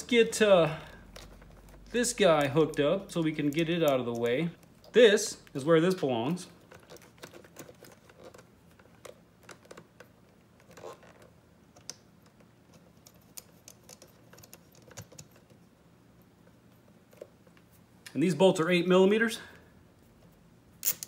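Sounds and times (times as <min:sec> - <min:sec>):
small parts clicking and tapping: 0:01.0 - 0:05.6, 0:06.6 - 0:15.6.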